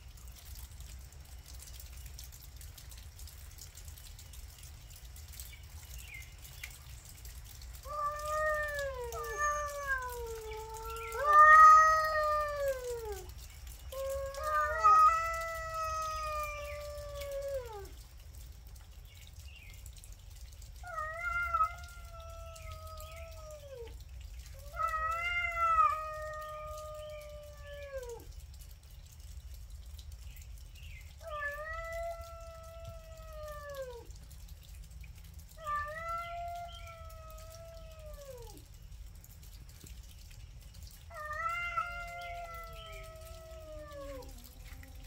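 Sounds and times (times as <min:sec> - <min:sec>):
cats yowling: 0:07.7 - 0:18.1, 0:20.7 - 0:28.4, 0:31.2 - 0:34.2, 0:35.4 - 0:38.7, 0:40.9 - 0:45.0.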